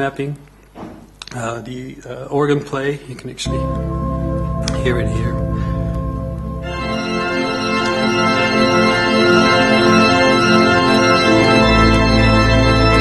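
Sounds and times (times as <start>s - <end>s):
deep organ bass note: 3.4s - 13.0s
organ chord: 3.4s - 13.0s.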